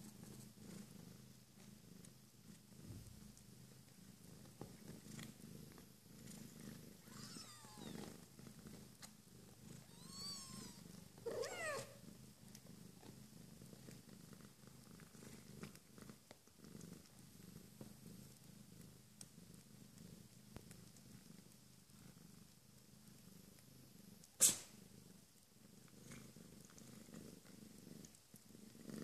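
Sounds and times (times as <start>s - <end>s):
cat purring: 0.0s - 29.0s
kitten mewing: 7.0s - 8.0s, 9.8s - 12.0s, 24.4s - 24.7s.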